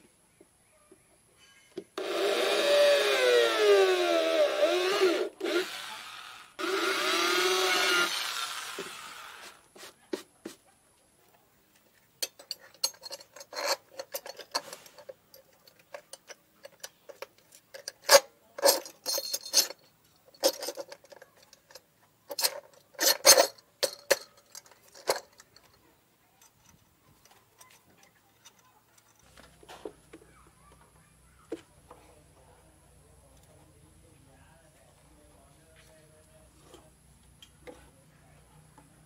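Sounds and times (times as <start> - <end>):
metal tool clicks and clanks: 12.2 - 29.3.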